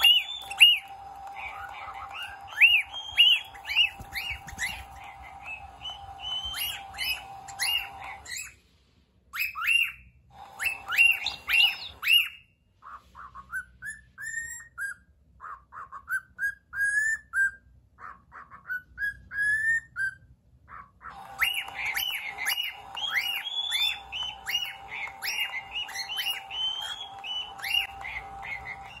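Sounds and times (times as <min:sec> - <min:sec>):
steady hum: 0:00.0 - 0:08.3, 0:21.2 - 0:29.0
toy playing back bird calls: 0:00.0 - 0:08.5, 0:09.4 - 0:12.4, 0:21.0 - 0:29.0
cockatiel chirping and whistling: 0:00.0 - 0:08.6, 0:09.3 - 0:29.0.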